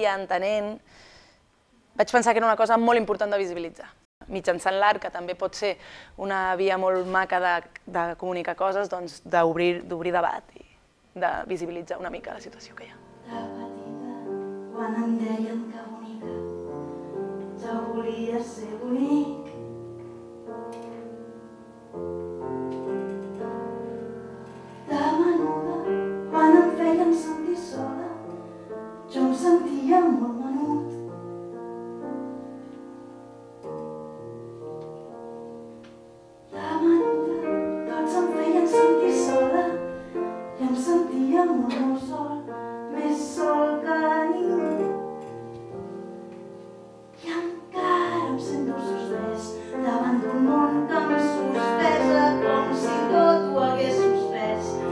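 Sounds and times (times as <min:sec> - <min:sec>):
woman singing with vibrato: 0:12.0 - 0:16.4, 0:17.6 - 0:19.6, 0:24.8 - 0:28.3, 0:29.1 - 0:31.0, 0:36.5 - 0:44.9, 0:47.2 - 0:54.9
piano accompaniment: 0:12.0 - 0:54.9.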